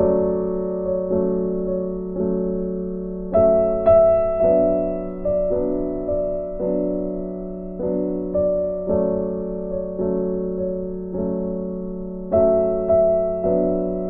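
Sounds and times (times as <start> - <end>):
keyboard playing gentle chords: 0.0 - 14.0.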